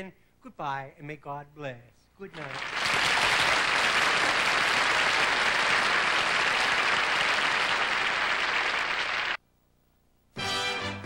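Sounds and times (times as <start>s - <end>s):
audience applauding: 2.3s - 9.4s.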